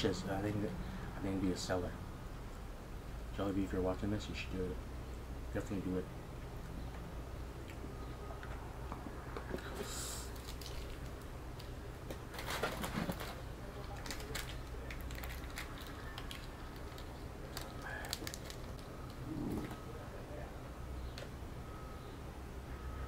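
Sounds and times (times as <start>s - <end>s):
small clicks and crackles: 10.4s - 19.8s.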